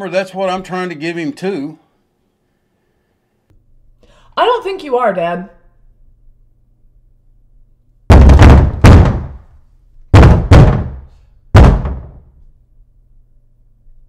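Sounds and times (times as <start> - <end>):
loud pounding on a door: 8.1 - 9.5, 10.1 - 12.3.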